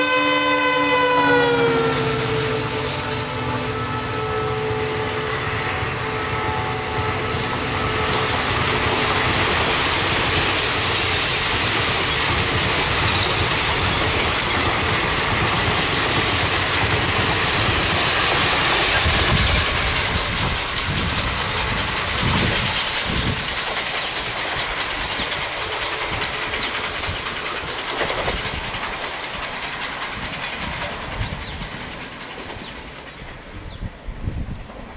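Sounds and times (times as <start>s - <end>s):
train horn: 0.0s - 9.3s
train wheels clattering past: 0.0s - 34.9s.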